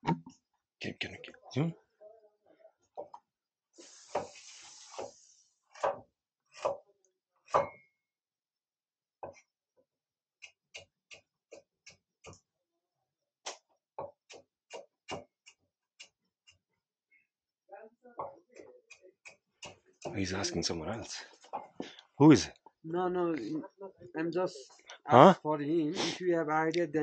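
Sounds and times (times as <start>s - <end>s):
short hiss: 3.8s - 5.5s
knife chopping on wooden board: 5.7s - 6.9s, 13.5s - 15.4s.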